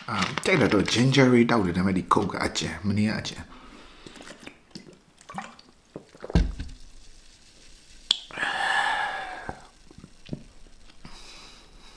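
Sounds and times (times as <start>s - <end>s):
man exhaling breathily: 8.3s - 9.7s.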